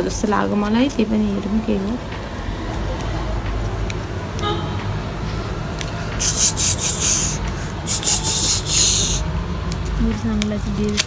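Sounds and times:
steady low hum: 0.0s - 10.8s.

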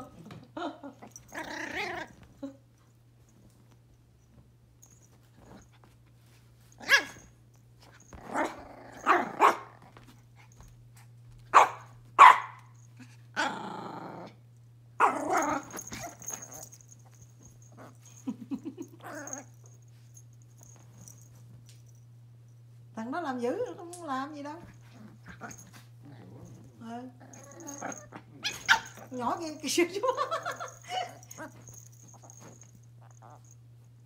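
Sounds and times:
puppies growling: 0.0s - 2.3s, 8.1s - 9.8s, 13.3s - 14.4s, 17.6s - 19.6s, 24.8s - 29.2s, 30.3s - 33.6s
puppies barking: 27.4s - 29.0s.

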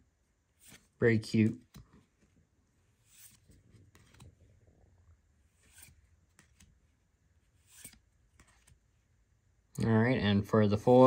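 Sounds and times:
trading cards rustling and tapping: 3.0s - 4.5s, 5.6s - 6.9s, 7.6s - 8.9s.

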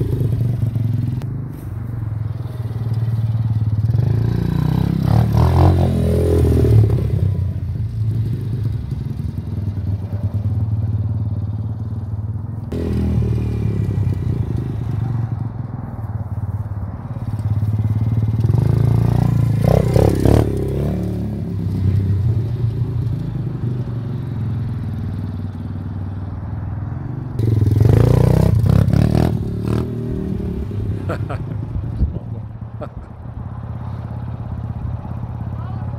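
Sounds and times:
dirt bike engine revving: 3.4s - 7.6s, 12.7s - 15.2s, 17.8s - 22.3s, 27.4s - 31.4s.

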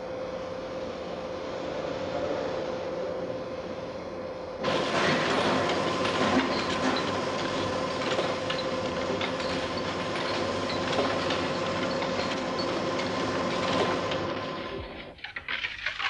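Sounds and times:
machinery humming: 0.0s - 15.5s
glass bottles clinking and rattling: 15.1s - 16.0s.

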